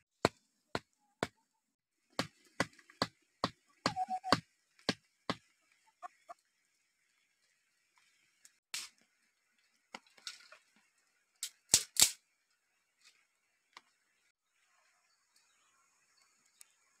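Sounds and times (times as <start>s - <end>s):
firewood clattering: 9.9s - 12.2s
dry sticks snapping: 11.4s - 12.2s.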